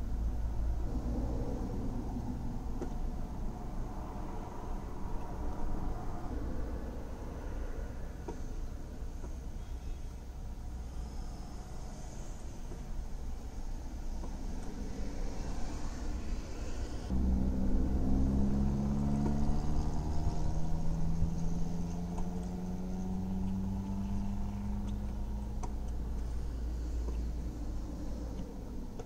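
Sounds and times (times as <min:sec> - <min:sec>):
vehicle engine running: 0:16.1 - 0:29.0.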